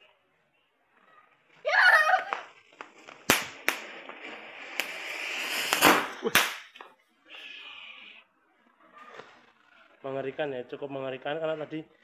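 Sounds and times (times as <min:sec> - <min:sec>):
firework fountain hissing: 0:01.8 - 0:06.7
firework sharp cracks: 0:02.0 - 0:06.8.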